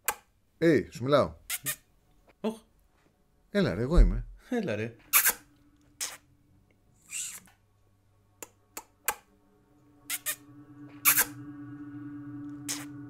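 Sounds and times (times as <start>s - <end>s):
low steady hum: 2.7s - 13.0s.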